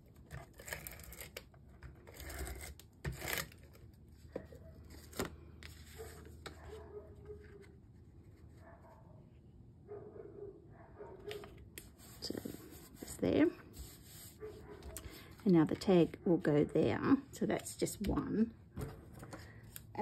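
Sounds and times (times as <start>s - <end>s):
paper rustling and sliding: 11.3s - 15.5s.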